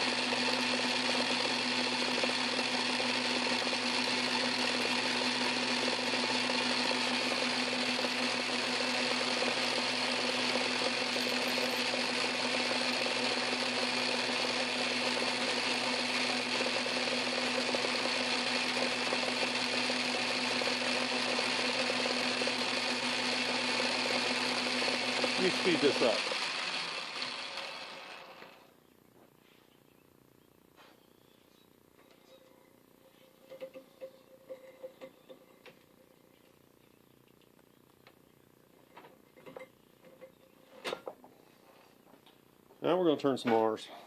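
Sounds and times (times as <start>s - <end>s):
metal lathe humming: 0.0s - 28.7s.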